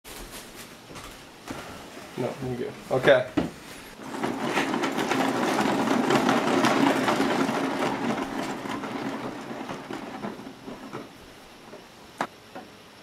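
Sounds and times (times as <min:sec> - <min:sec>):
turntable bearing rumbling: 0:03.0 - 0:12.7.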